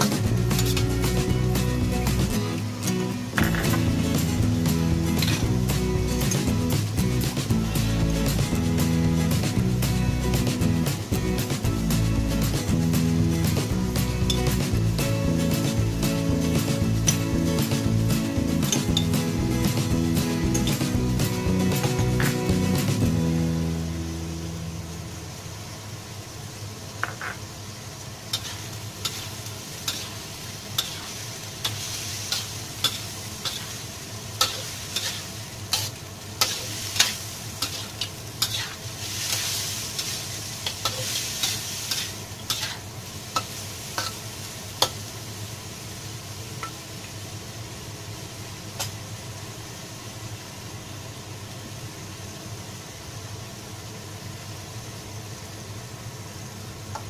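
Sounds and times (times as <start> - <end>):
low steady hum: 0.0 - 39.3
food sizzling in a wok: 0.0 - 57.0
spatula scraping a wok: 0.1 - 1.1, 5.1 - 6.5, 28.3 - 45.0.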